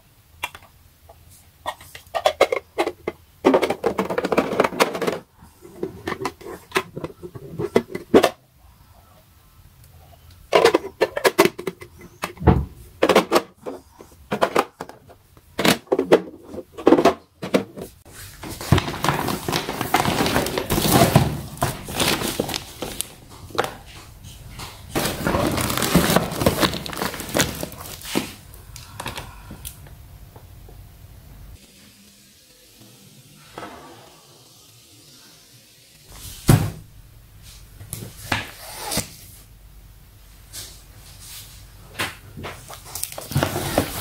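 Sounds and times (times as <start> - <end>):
plastic containers clacking: 1.7 - 8.4, 10.5 - 24.0, 24.6 - 28.4
packaging rustling and scraping: 13.2 - 28.5, 42.6 - 44.0.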